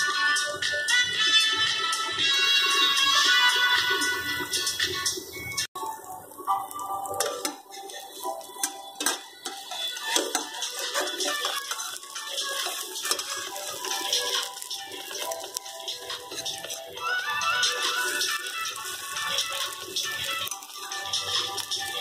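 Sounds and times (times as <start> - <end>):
faint background music: 0.0 - 22.0
metal spatula scraping frying pan: 7.1 - 22.0.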